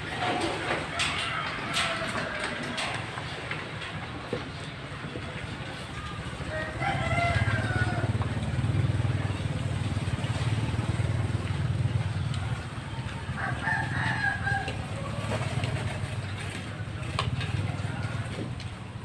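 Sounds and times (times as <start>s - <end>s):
rooster crowing: 0.6s - 3.1s, 6.5s - 8.3s, 12.8s - 15.4s.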